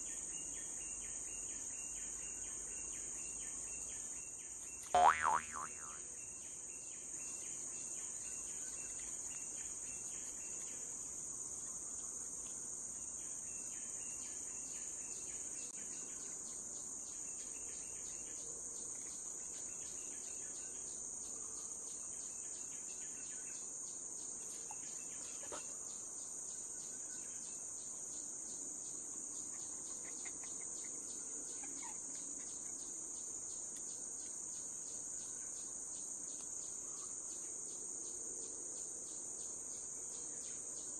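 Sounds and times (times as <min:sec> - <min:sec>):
high-pitched insect chorus: 0:00.0 - 0:40.9
ticking insect call: 0:02.0 - 0:06.1, 0:27.5 - 0:38.2.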